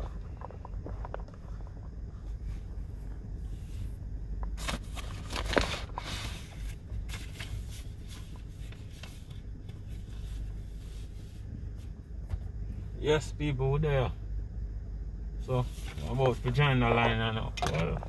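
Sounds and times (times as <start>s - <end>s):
low steady rumble: 0.0s - 18.0s
paper rustling and crackling: 4.5s - 11.9s.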